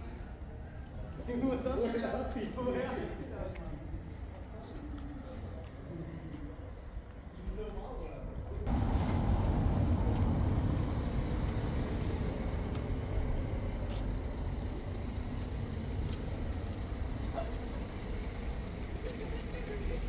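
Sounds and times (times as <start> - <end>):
road traffic rumble: 8.6 - 20.0.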